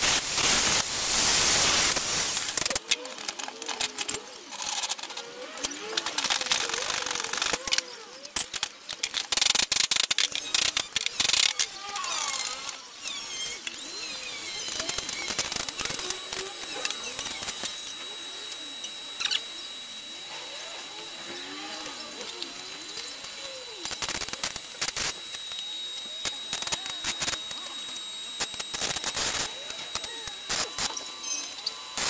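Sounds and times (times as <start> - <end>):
constant hiss: 0.0 - 5.0, 13.4 - 32.0
high-pitched whine: 0.0 - 32.0
click: 2.6 - 13.8.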